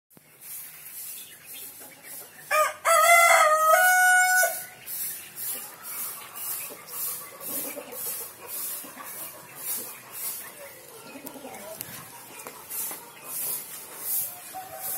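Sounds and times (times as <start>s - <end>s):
rooster crowing: 2.5s - 4.7s, 14.2s - 14.9s.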